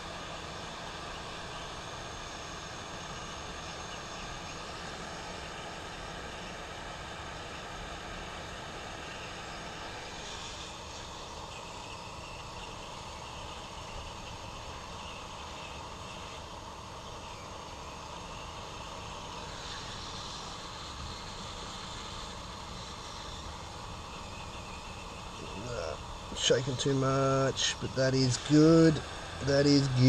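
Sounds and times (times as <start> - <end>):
hot-air gun blowing: 8.5 - 12.2, 18.2 - 30.0.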